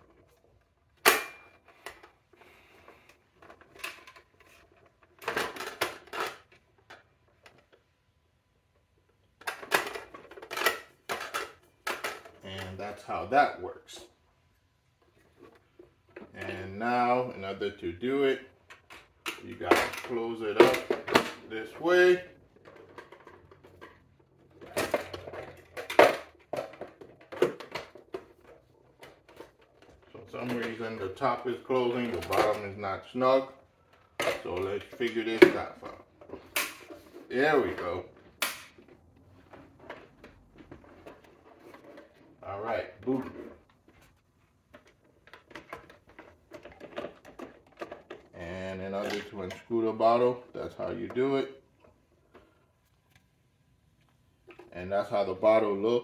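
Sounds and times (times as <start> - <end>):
plastic clattering: 0.0 - 8.0, 8.7 - 13.0, 18.3 - 53.3, 53.9 - 55.3
plastic cover knocking and scraping: 33.8 - 42.4, 43.0 - 48.4.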